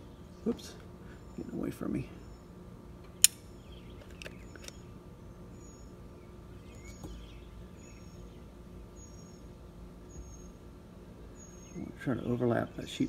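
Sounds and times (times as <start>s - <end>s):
low steady hum: 0.0s - 13.0s
caulking gun clicking: 3.1s - 3.5s.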